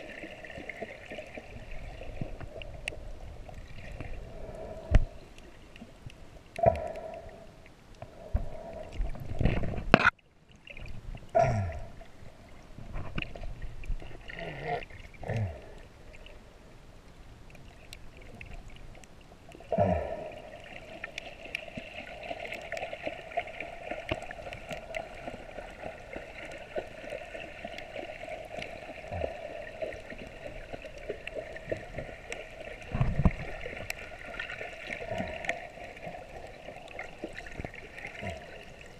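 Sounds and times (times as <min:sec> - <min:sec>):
muffled underwater gurgling: 0:06.5 - 0:10.1, 0:11.3 - 0:12.2, 0:13.9 - 0:16.5, 0:19.5 - 0:38.9.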